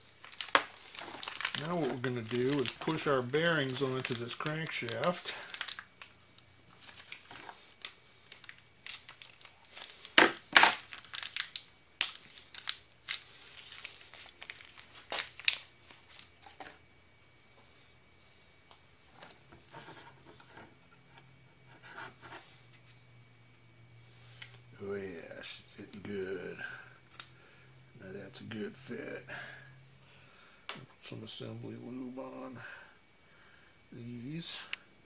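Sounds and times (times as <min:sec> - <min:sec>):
plastic packaging crinkling and tearing: 0:00.0 - 0:16.8.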